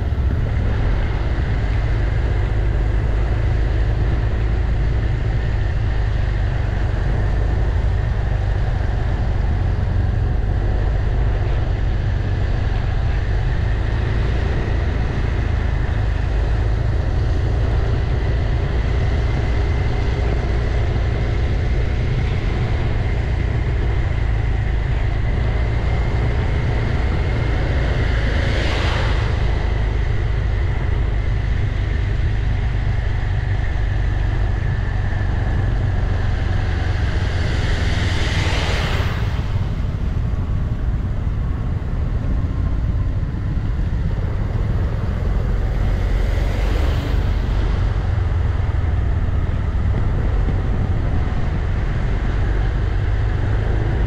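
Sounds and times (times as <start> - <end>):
whooshing wind noise: 0.0 - 54.0
wind buffeting and road noise: 0.0 - 54.0.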